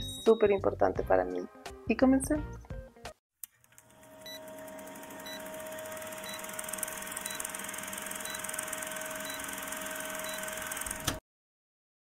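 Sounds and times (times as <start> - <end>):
film projector clatter: 3.6 - 11.2.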